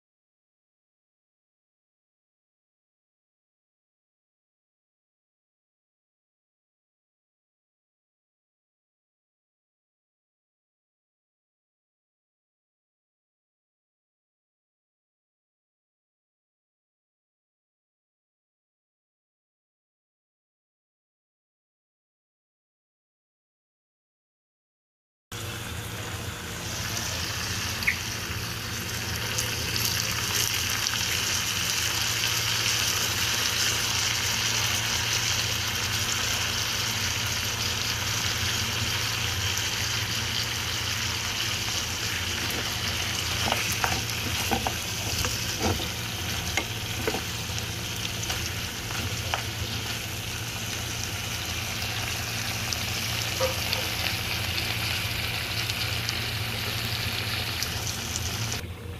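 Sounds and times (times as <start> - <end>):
ribs sizzling in oil: 25.4 - 58.6.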